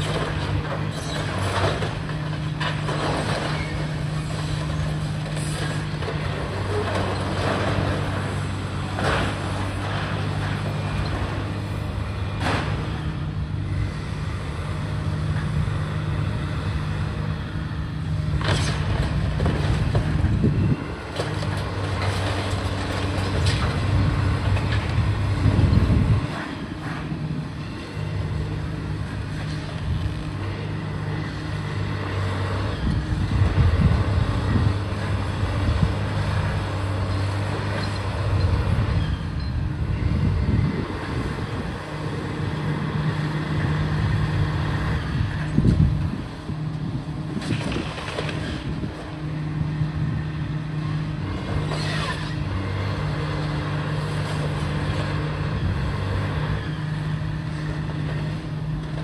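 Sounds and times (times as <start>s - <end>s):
diesel machinery engine hum: 0.0s - 59.0s
sharp knocks and crunches: 18.3s - 20.4s, 47.3s - 48.7s.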